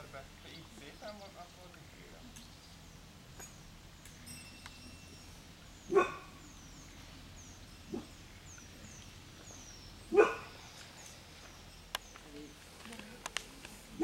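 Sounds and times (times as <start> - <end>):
dog barking: 5.9 - 6.4, 10.1 - 10.6.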